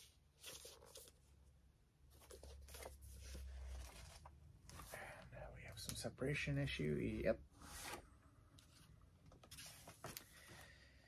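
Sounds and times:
paperback book rustling and clicks: 0:02.1 - 0:04.9, 0:08.6 - 0:10.6.

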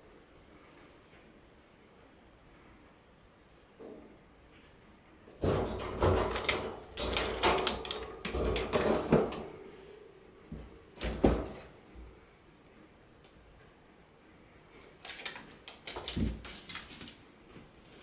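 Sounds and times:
wire cage rattling: 0:05.4 - 0:09.7.

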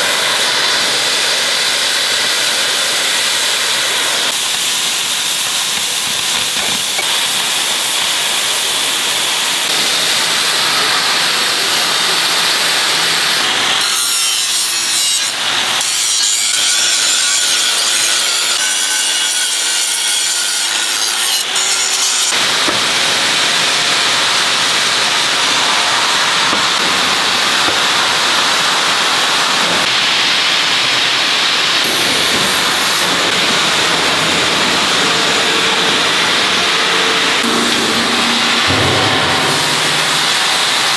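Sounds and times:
cutting torch hissing: 0:00.0 - 0:13.9
angle grinder grinding steel: 0:34.9 - 0:40.9.

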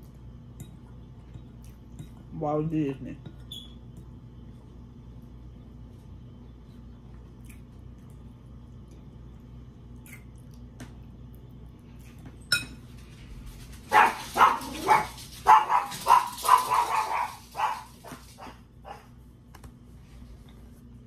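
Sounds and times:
fork clinking in glass bowl: 0:12.5 - 0:12.8.

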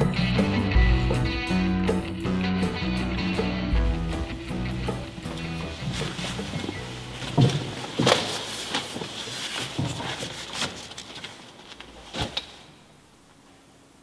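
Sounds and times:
wooden pews knocking and creaking: 0:03.8 - 0:12.5.

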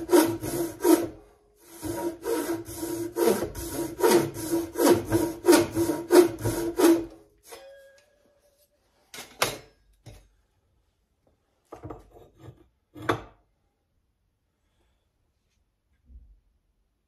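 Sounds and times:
tools knocking and clattering: 0:09.1 - 0:10.3.

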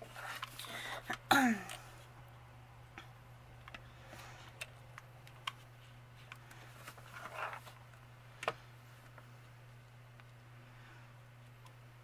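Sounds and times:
paper rustle: 0:06.6 - 0:07.8.

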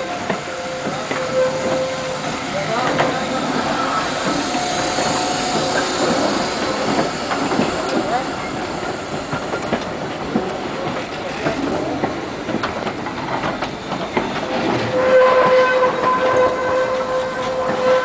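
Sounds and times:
train signal horn blast: 0:00.0 - 0:04.9, 0:14.8 - 0:18.0
train wheels clattering on track: 0:00.0 - 0:18.0.

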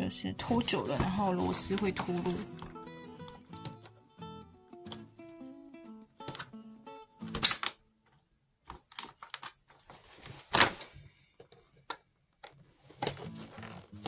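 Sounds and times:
fabric lining rustling: 0:00.4 - 0:02.8, 0:08.7 - 0:11.3.

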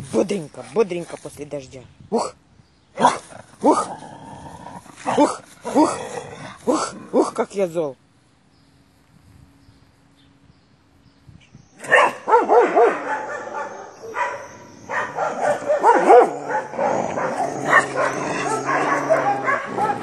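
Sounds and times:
dog barking and yipping: 0:11.8 - 0:20.0.

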